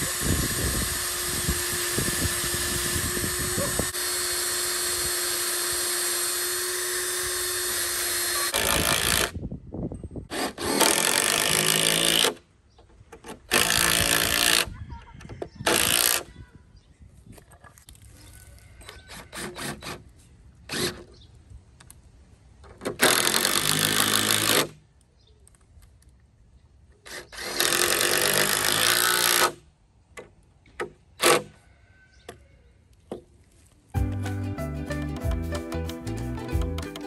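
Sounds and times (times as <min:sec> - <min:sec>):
impact driver driving screws: 0:00.0 - 0:09.4, 0:10.3 - 0:12.4, 0:13.1 - 0:14.7, 0:15.6 - 0:16.3, 0:18.9 - 0:20.1, 0:20.7 - 0:21.2, 0:22.7 - 0:24.8, 0:27.0 - 0:29.6, 0:30.2 - 0:31.6.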